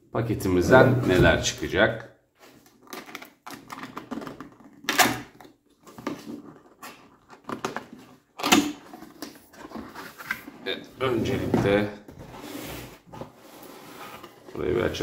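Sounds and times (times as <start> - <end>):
cardboard box scraping: 9.5 - 14.8.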